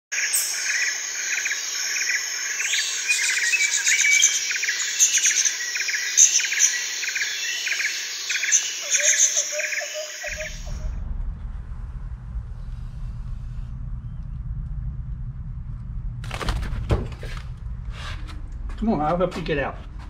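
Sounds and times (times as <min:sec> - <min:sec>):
birds chirping: 0:00.2 - 0:11.0
high insect trill: 0:00.2 - 0:11.0.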